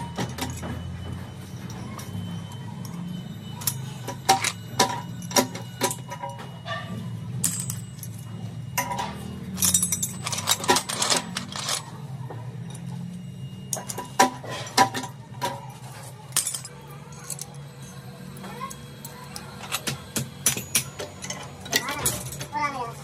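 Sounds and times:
metal parts clinking: 2.8s - 12.0s, 13.7s - 22.6s.

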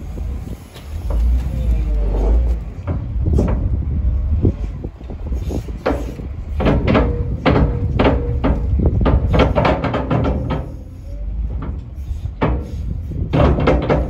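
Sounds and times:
loader engine rumbling: 0.0s - 14.0s
bucket clanking on steel trailer: 5.8s - 14.0s.

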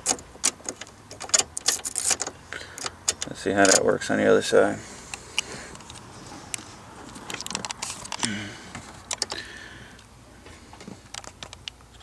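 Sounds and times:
key ring jangling: 0.0s - 3.8s
light clicks and rattles: 0.0s - 4.0s, 5.1s - 9.4s, 10.7s - 12.0s.

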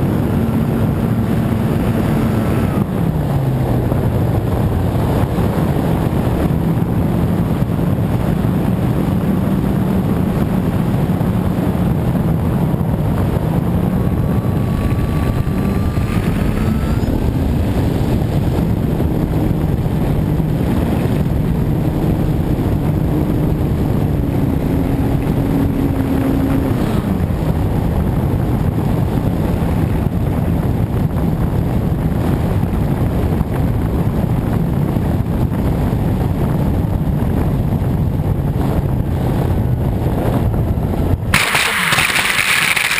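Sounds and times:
wind rush on microphone: 0.0s - 42.9s.

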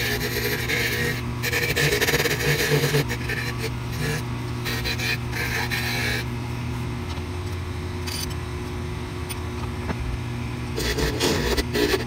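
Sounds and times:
chisel scraping spinning wood: 0.0s - 6.3s, 10.7s - 12.0s
wood lathe motor hum: 0.0s - 6.9s, 10.6s - 12.0s.

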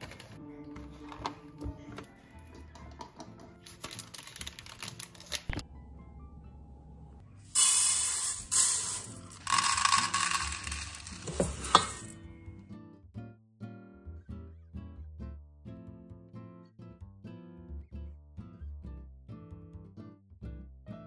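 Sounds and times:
soft background music: 0.0s - 21.0s
rice grains pouring into metal pot: 7.6s - 12.1s.

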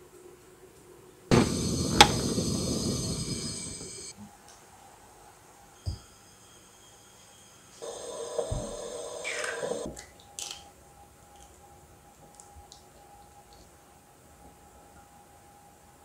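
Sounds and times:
hum with falling whine: 1.3s - 4.1s.

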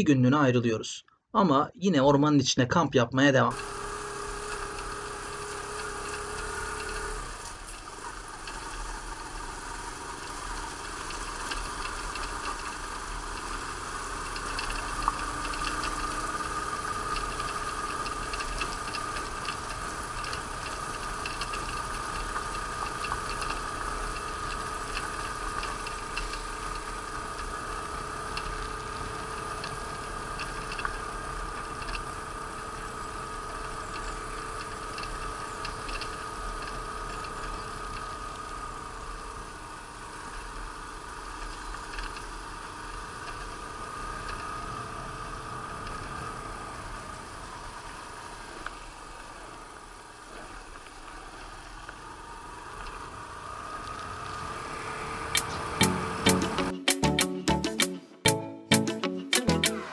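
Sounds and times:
motorcycle engine running: 3.5s - 56.6s
small ticks and rattles: 4.2s - 38.4s, 41.3s - 44.5s.

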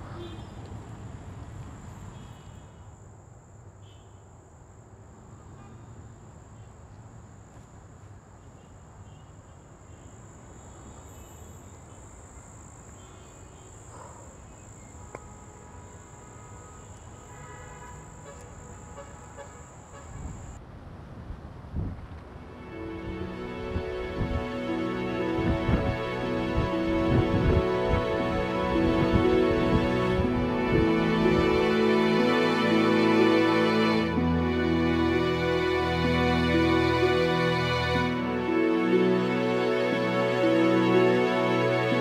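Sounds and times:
insect drone: 8.5s - 20.6s.

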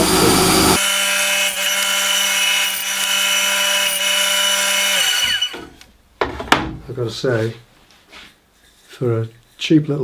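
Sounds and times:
bandsaw motor hum and whine: 0.0s - 5.8s.

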